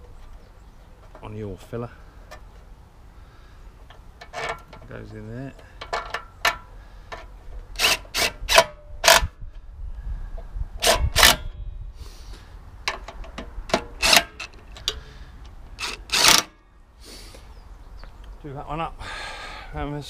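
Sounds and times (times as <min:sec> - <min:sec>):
metal tools clicking and knocking: 0:05.6 - 0:09.3
impact driver bursts: 0:15.8 - 0:16.5.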